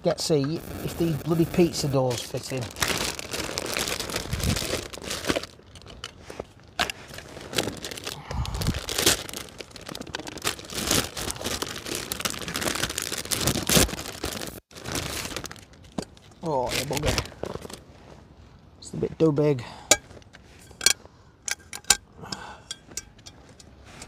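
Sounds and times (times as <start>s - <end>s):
packaging rustling and crackling: 0.3s - 17.9s.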